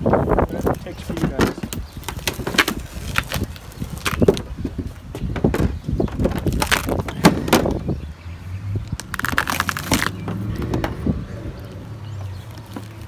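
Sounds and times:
panel peeling crackling and tearing: 0:01.4 - 0:04.5, 0:06.2 - 0:07.8, 0:08.9 - 0:10.3
loud cracks: 0:09.0 - 0:10.2.

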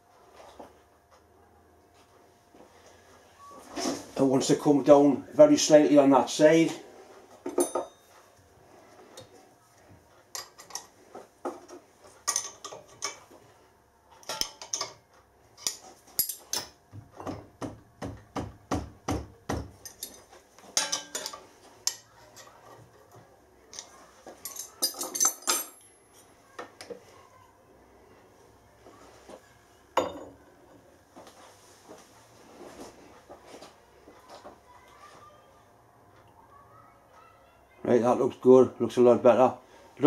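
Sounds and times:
metal parts knocking and clinking: 0:19.8 - 0:22.5, 0:23.8 - 0:25.9.

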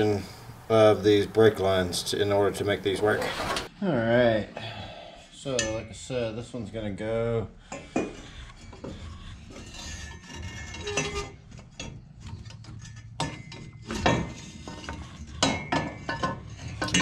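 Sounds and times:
metal tubes clinking and knocking: 0:07.7 - 0:17.0.

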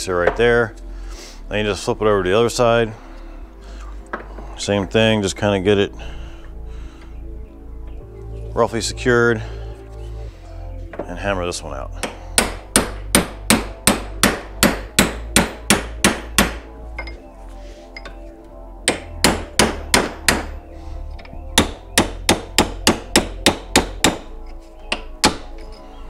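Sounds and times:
hammer striking steel punch: 0:12.0 - 0:17.2, 0:18.8 - 0:20.6, 0:21.6 - 0:24.3, 0:24.9 - 0:25.7.

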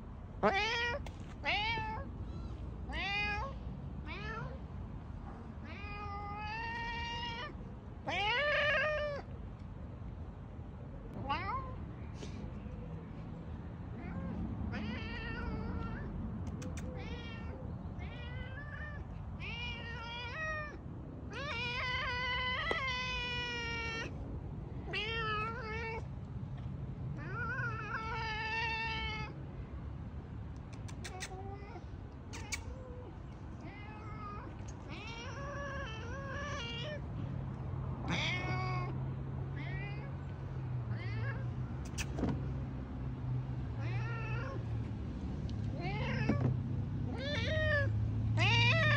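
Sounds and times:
cat meowing: 0:00.4 - 0:04.6, 0:05.6 - 0:09.3, 0:11.2 - 0:11.8, 0:13.9 - 0:24.2, 0:24.8 - 0:26.1, 0:30.8 - 0:37.1, 0:38.0 - 0:42.1, 0:43.8 - 0:44.7, 0:45.7 - 0:46.5, 0:47.1 - 0:48.9.

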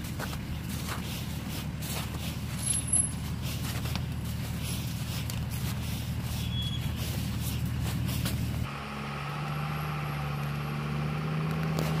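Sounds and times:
suv engine running at low revs: 0:00.0 - 0:12.0
brief high squeaks: 0:06.4 - 0:07.0.

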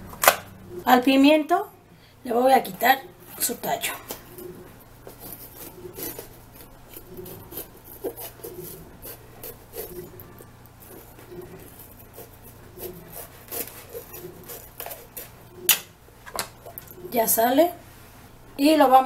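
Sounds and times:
knife sawing through pepper: 0:04.3 - 0:15.4.

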